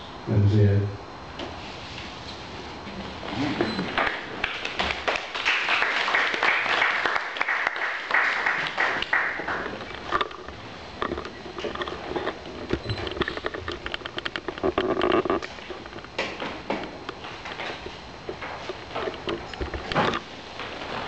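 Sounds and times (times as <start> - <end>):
audience applauding: 3.9 - 9.8.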